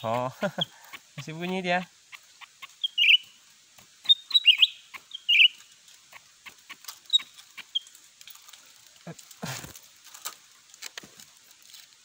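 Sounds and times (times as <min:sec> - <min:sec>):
bird chirping sharply: 0:00.0 - 0:03.4, 0:04.0 - 0:05.6.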